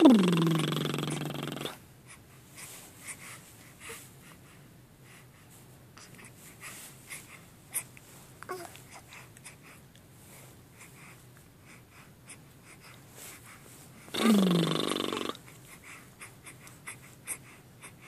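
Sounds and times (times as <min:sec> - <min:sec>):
high little vocal sound: 0:00.0 - 0:01.8, 0:14.2 - 0:15.4
baby snuffly breathing: 0:00.0 - 0:18.0.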